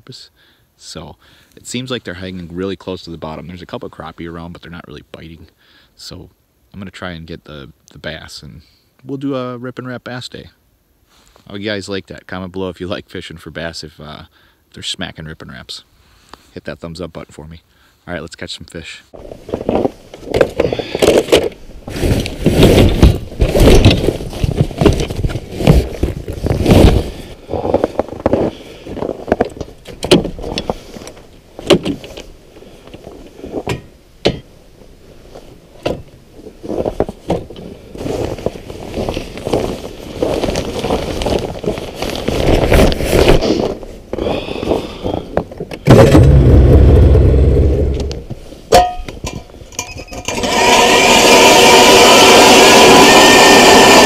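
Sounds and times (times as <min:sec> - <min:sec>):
fabric bag rustling: 0:38.0 - 0:44.1.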